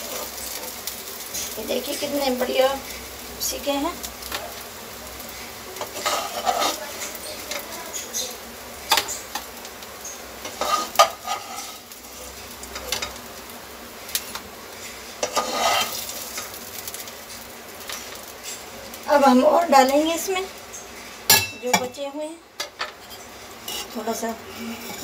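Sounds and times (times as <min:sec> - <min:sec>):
meat sizzling in a pan: 0:00.0 - 0:25.0
spatula scraping and knocking pan: 0:05.8 - 0:07.7, 0:10.4 - 0:11.9, 0:14.3 - 0:16.6, 0:22.6 - 0:25.0.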